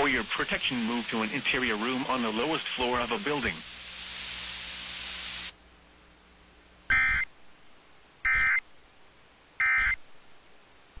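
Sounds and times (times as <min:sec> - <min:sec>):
faint radio hiss: 0:00.0 - 0:11.0
digital data bursts: 0:06.9 - 0:07.3, 0:08.3 - 0:08.6, 0:09.6 - 0:10.0.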